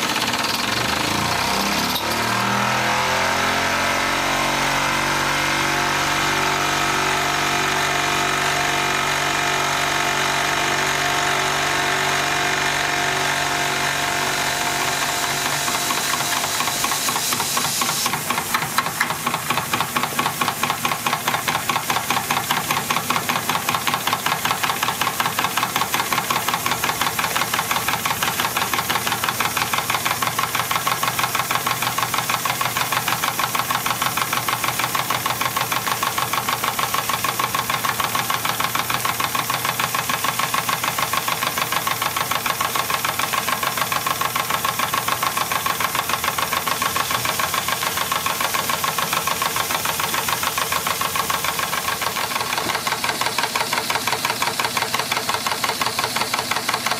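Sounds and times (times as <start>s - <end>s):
toy steam engine whirring: 0.0s - 2.2s, 14.7s - 56.9s
steam engine knocking beat: 14.3s - 56.9s.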